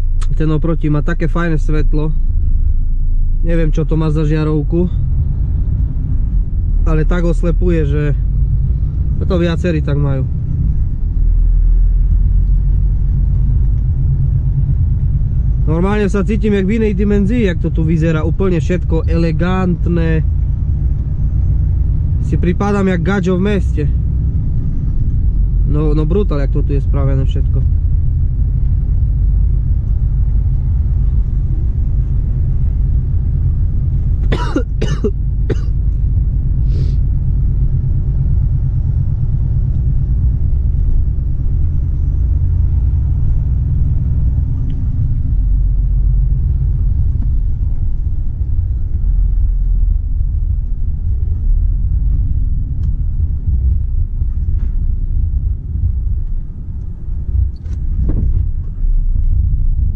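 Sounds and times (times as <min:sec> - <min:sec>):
truck diesel engine rumble: 0:00.0 - 0:59.9
man coughing: 0:34.3 - 0:35.8.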